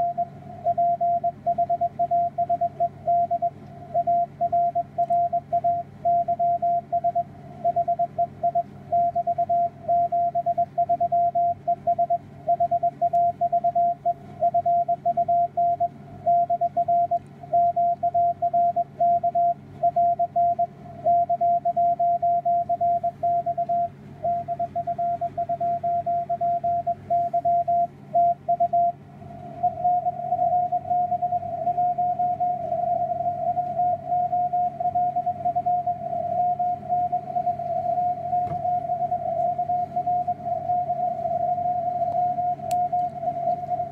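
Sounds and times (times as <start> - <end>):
morse code beeping: 0.0 - 29.0.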